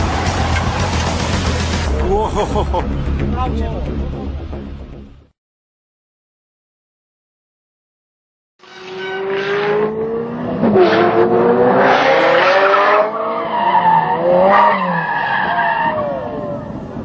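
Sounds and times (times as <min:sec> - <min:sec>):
car engine revving: 0:00.0 - 0:01.9, 0:08.8 - 0:15.1.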